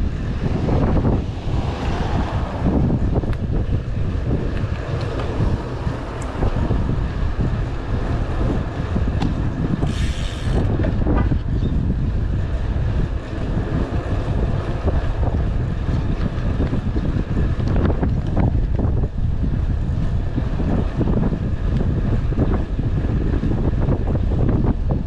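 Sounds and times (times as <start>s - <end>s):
wind buffeting microphone: 0.0s - 25.0s
brief hiss: 9.8s - 10.5s.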